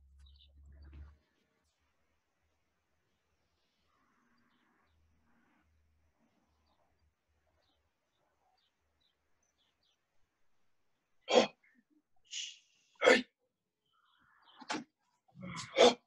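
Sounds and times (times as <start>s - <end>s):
person breathing out sharply: 12.3s - 12.6s.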